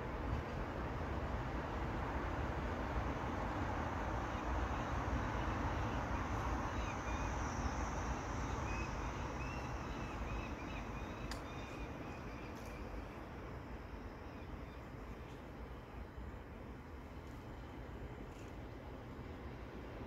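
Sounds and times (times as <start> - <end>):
faint bird chirps: 8.5 - 12.9.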